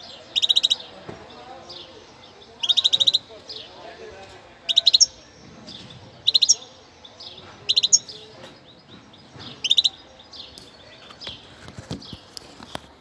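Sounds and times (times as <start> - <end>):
goldfinch singing: 0.1 - 1.0, 1.6 - 3.9, 4.6 - 11.5.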